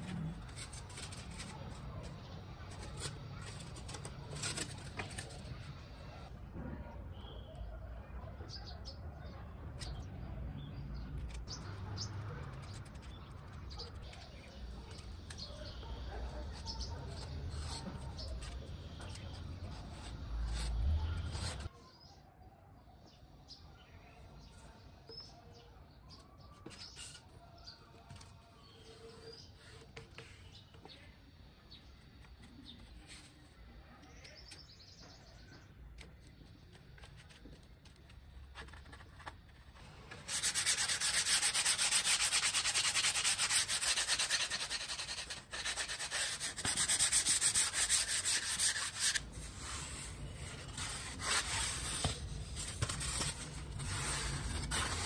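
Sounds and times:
stick scraping foam: 0:00.0 - 0:06.2, 0:16.6 - 0:21.7, 0:36.2 - 0:55.0
sandpaper rasping on foam: 0:16.2 - 0:21.7, 0:39.8 - 0:55.0.

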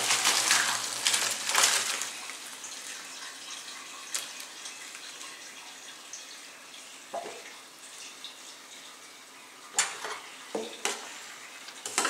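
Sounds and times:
water pouring through a colander: 0:00.0 - 0:12.0.

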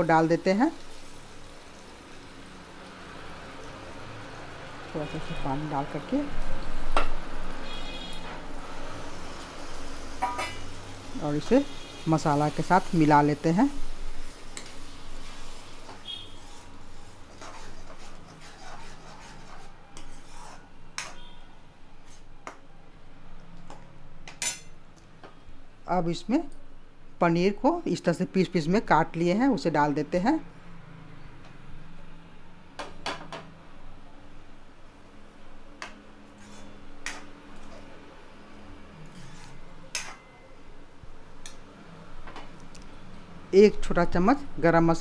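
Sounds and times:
spoon clinking against metal pan: 0:10.2 - 0:10.6
spoon scraping thick gravy: 0:16.4 - 0:21.3, 0:36.3 - 0:37.8, 0:39.0 - 0:40.2.

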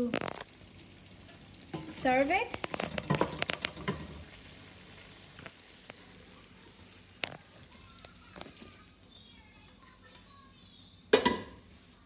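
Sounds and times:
pasta sizzling in a frying pan: 0:00.0 - 0:09.0.

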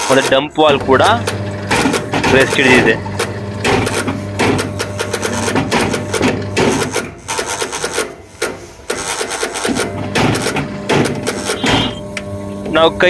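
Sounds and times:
rapid clicking and rattling: 0:00.0 - 0:11.9
drain motor humming: 0:00.5 - 0:06.9, 0:09.9 - 0:13.0.

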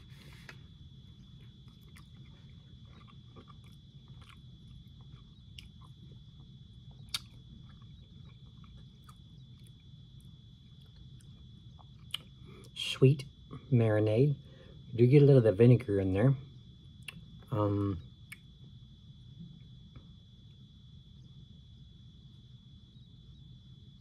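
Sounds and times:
steady low hum: 0:00.0 - 0:24.0
person chewing: 0:00.1 - 0:12.8.

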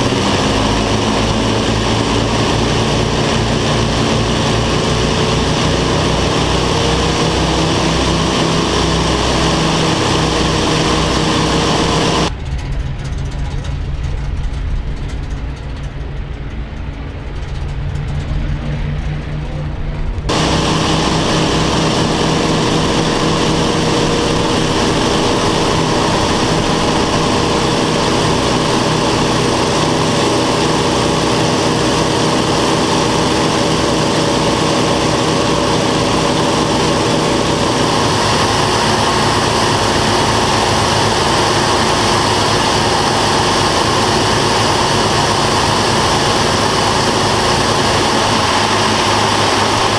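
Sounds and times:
aircraft radial engines droning: 0:00.0 - 0:49.9
rushing slipstream: 0:20.3 - 0:49.9.

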